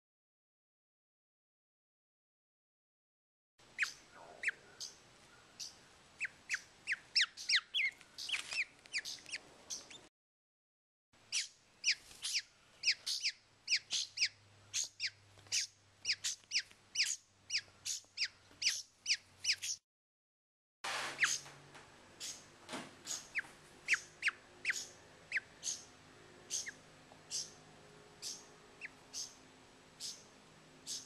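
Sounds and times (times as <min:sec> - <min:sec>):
baby bird begging calls: 0:03.7 - 0:05.0, 0:05.6 - 0:10.0, 0:11.3 - 0:19.8, 0:21.2 - 0:21.5, 0:22.2 - 0:22.5, 0:23.1 - 0:25.9, 0:26.5 - 0:27.6, 0:28.2 - 0:29.4, 0:30.0 - 0:31.0.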